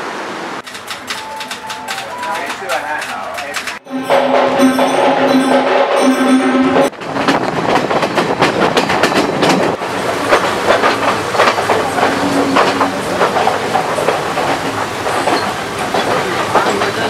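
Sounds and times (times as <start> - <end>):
train wheels clattering over rail joints: 0.6 - 6.1, 6.8 - 17.0
drumming music: 0.8 - 7.0.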